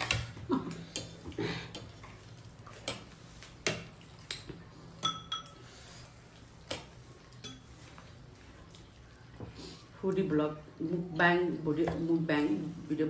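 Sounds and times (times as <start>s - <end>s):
cutlery clinking on a plate: 5.0s - 5.6s.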